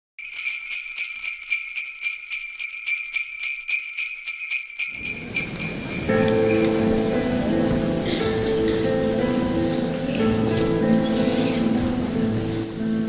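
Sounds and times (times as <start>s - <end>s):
sleigh bells jingling: 0.2s - 7.5s
low-pitched music: 5.0s - 13.0s.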